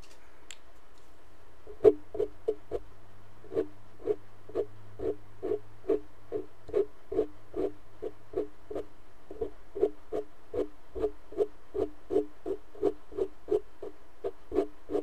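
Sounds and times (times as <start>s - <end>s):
faint steady hum: 0.0s - 15.0s
makeup brush brushing microphone: 3.5s - 15.0s.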